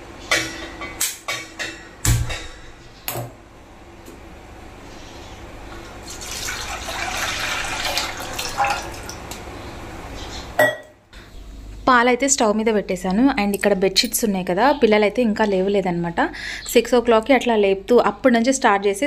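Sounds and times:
sharp knock: 1.4s - 3.3s
milk splashing pour: 5.9s - 9.3s.

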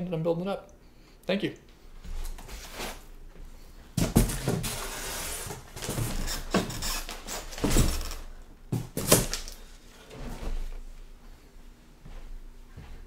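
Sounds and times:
knocks against cardboard box: 4.0s - 4.8s
packing paper and foam rustling: 4.0s - 8.2s.

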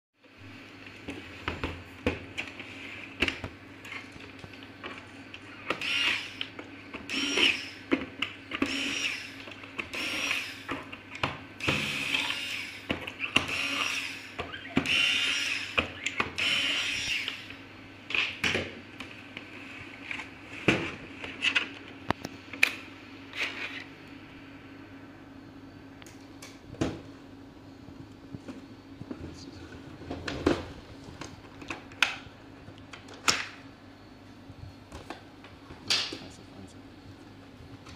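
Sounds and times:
electric screwdriver running: 5.7s - 6.5s, 7.1s - 7.8s, 8.6s - 10.7s, 11.6s - 15.8s, 16.4s - 17.5s.

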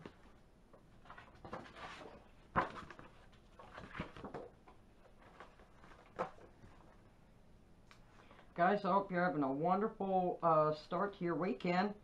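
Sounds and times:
paper rustling and sliding: 1.0s - 4.4s.

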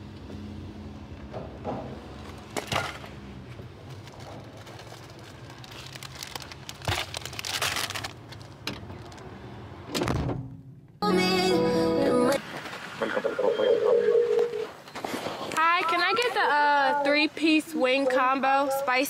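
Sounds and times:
plastic bags rustling: 3.8s - 9.2s.

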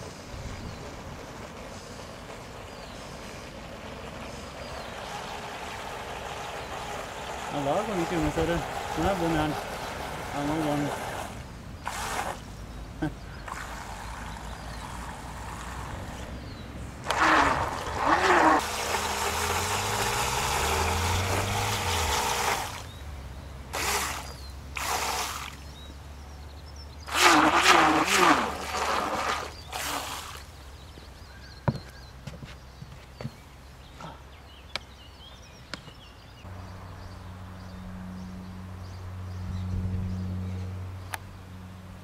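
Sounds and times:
small electric motor hum: 4.2s - 12.4s, 17.1s - 23.0s, 23.8s - 25.6s.

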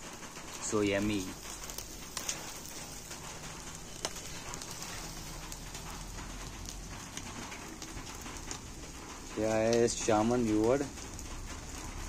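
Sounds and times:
barbecue sizzling: 0.0s - 12.0s
embers crackling and popping: 0.0s - 12.0s.

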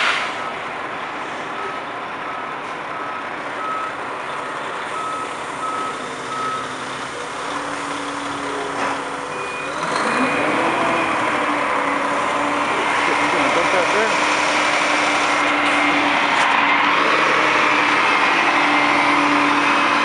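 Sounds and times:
diesel truck engines running: 0.0s - 20.0s
backup alarm beeping: 5.0s - 7.0s, 9.3s - 11.2s.

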